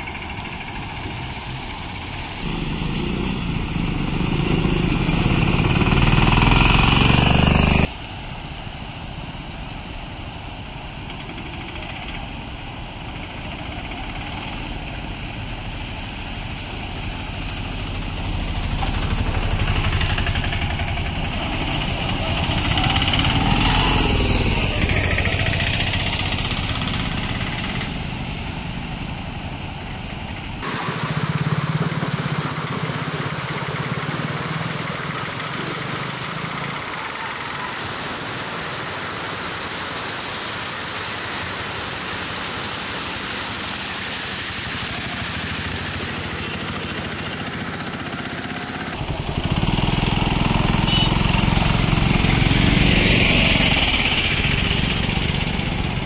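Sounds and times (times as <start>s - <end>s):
small engines running: 0.0s - 8.0s, 10.2s - 56.0s
rush of water: 0.0s - 56.0s
tyres splashing water: 0.0s - 56.0s.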